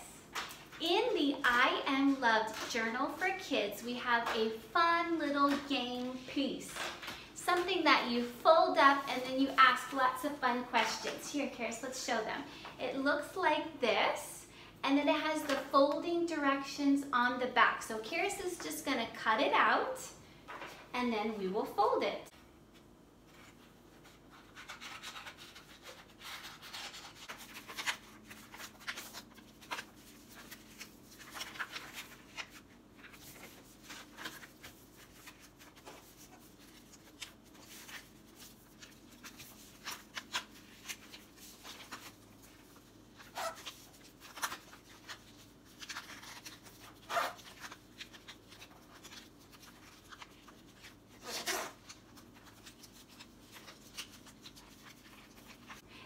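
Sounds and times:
paper rustling and crinkling: 0:23.2 - 0:56.0.

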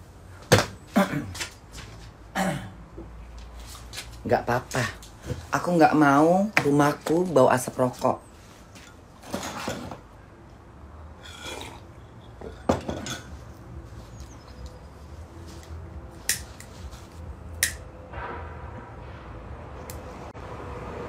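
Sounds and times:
pocket lighter clicks: 0:17.6 - 0:17.8.

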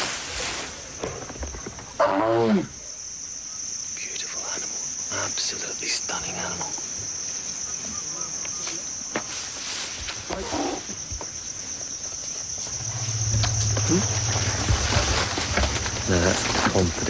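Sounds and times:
insects chirring: 0:00.0 - 0:17.0
low steady rumble: 0:12.7 - 0:16.8.

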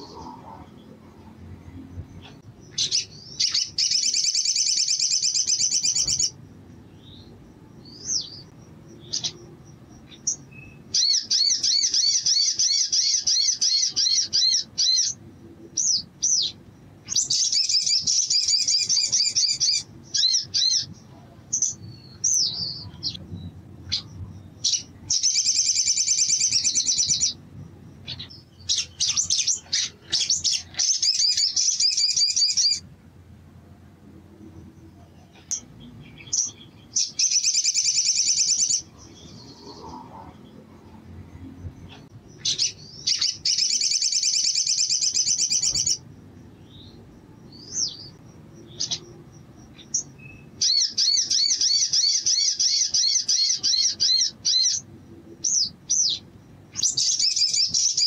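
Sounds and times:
songbird warbling trills: 0:00.0 - 0:32.9, 0:34.7 - 0:58.0
bird chirps and whistles: 0:02.7 - 0:06.3, 0:15.8 - 0:20.9, 0:24.6 - 0:27.4, 0:28.1 - 0:32.8, 0:42.4 - 0:46.0, 0:49.8 - 0:54.8, 0:56.8 - 0:58.0.

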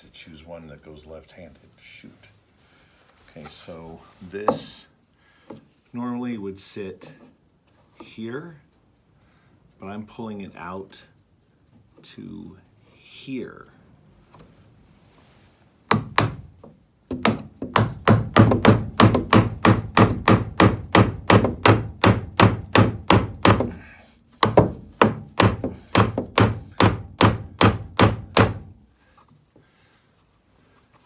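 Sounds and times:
hammer driving nails into wood: 0:15.9 - 0:16.5, 0:17.1 - 0:28.8.

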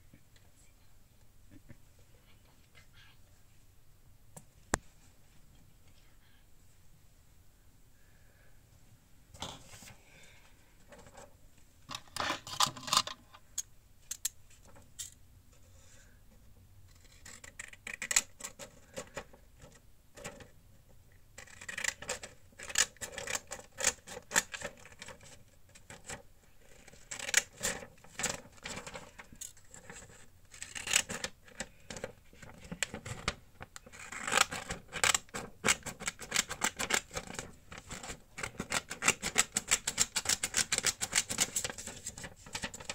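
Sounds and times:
paper crackling: 0:32.0 - 0:42.9.

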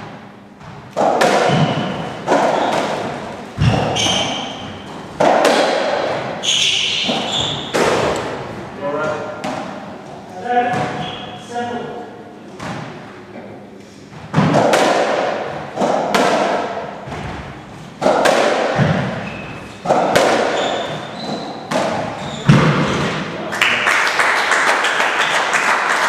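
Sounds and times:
ball struck by rackets: 0:00.0 - 0:08.4, 0:14.2 - 0:23.3
ball slamming into walls: 0:00.6 - 0:08.5, 0:10.6 - 0:11.2, 0:14.1 - 0:23.3
applause: 0:23.5 - 0:26.0.

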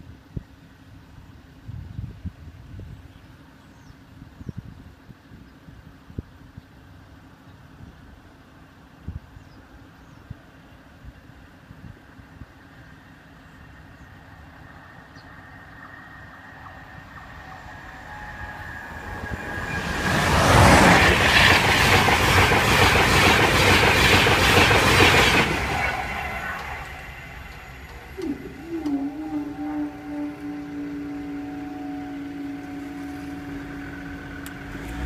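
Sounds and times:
train passing at speed: 0:11.2 - 0:35.0
wheels clickety-clack on rails: 0:15.6 - 0:29.3.

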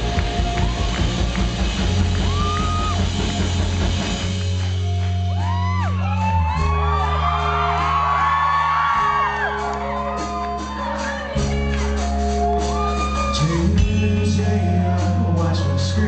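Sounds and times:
audience screaming and whooping: 0:00.0 - 0:13.8
rock band playing: 0:00.0 - 0:16.0
man singing: 0:13.0 - 0:16.0.

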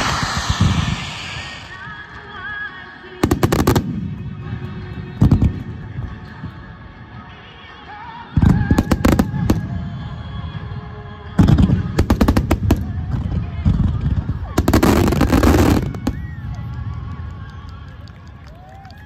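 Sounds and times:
fireworks banging: 0:00.0 - 0:04.6.

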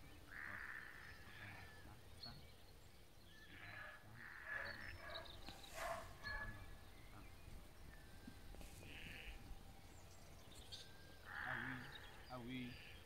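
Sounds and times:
sheep and lambs bleating: 0:00.3 - 0:02.0, 0:03.4 - 0:05.0, 0:08.7 - 0:09.5, 0:11.2 - 0:13.0.

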